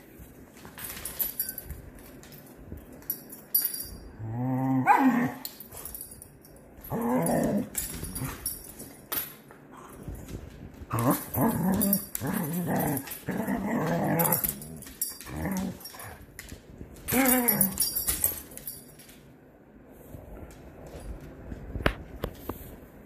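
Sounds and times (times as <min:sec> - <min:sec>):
dogs play growling and barking: 0:04.1 - 0:06.2, 0:06.8 - 0:09.0, 0:09.7 - 0:18.8.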